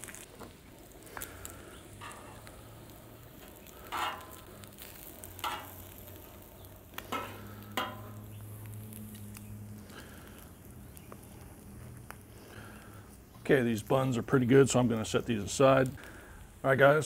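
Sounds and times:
bacon sizzling on a griddle: 0.0s - 17.0s
metal tongs scraping a griddle: 1.2s - 10.0s.

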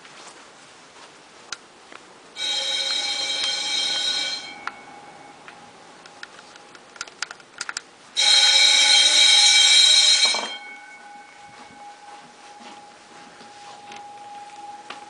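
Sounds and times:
electric bell ringing: 2.4s - 6.0s, 8.2s - 15.0s.

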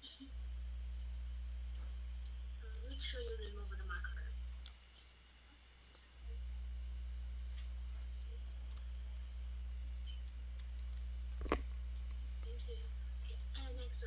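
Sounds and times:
low electrical hum: 0.0s - 14.0s
computer keyboard typing: 0.9s - 1.1s, 1.7s - 3.6s, 5.8s - 6.1s, 7.4s - 9.4s, 10.0s - 11.0s.

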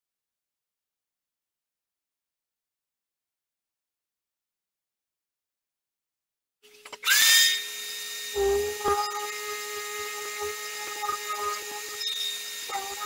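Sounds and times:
orbital sander whining: 7.0s - 13.0s.

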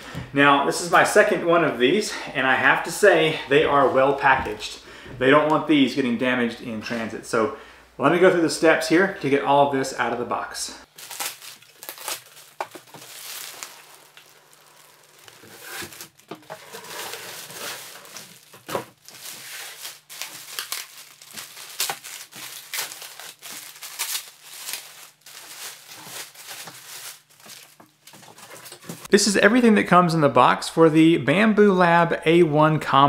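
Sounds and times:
plastic sheet crinkling and rustling: 10.9s - 29.1s.

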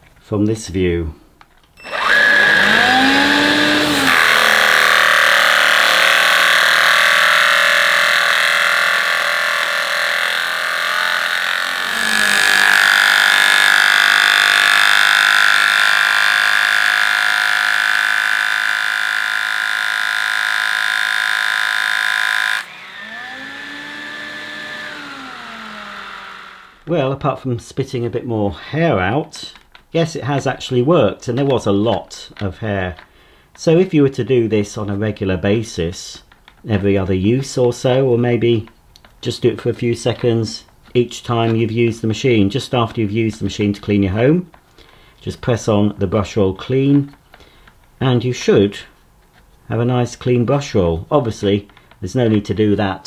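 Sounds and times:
brush roll cutting hair: 1.8s - 26.9s
stick vacuum motor running: 1.8s - 26.9s.

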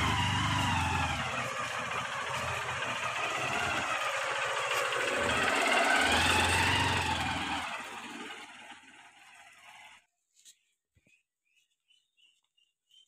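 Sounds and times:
motorcycle engine running: 0.0s - 10.0s.

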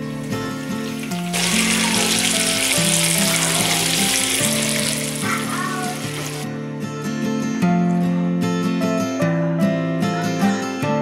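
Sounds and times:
bacon sizzling in a frying pan: 0.0s - 6.5s.

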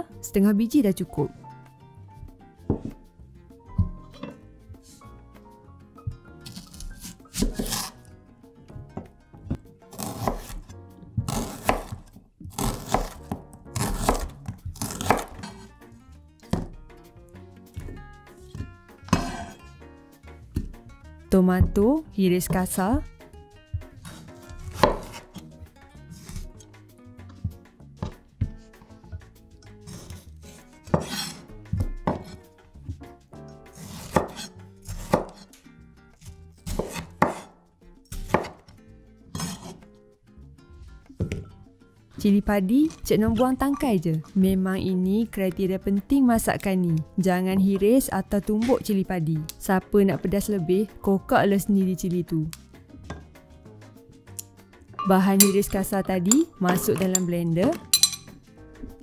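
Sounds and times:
background music: 0.0s - 59.0s
knife slicing onion on wooden board: 2.2s - 3.1s, 6.1s - 8.1s, 8.7s - 15.8s, 17.7s - 19.7s, 22.4s - 35.6s, 36.2s - 40.0s.

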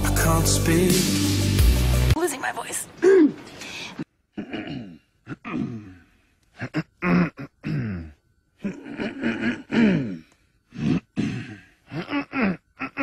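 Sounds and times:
men clearing throats: 4.3s - 13.0s.

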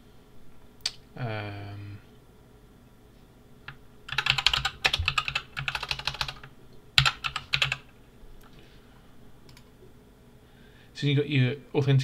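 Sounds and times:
typing on computer keyboard: 3.7s - 7.8s, 9.5s - 9.7s.

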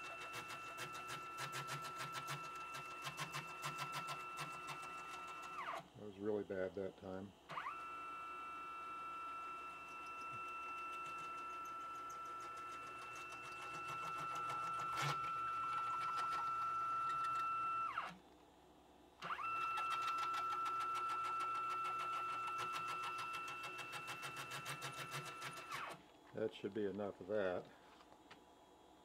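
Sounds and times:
motor whine: 7.5s - 18.2s, 19.2s - 23.7s.

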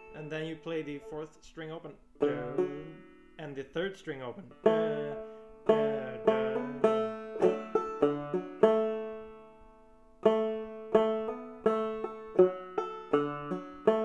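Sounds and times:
banjo plucked notes: 0.0s - 14.0s.

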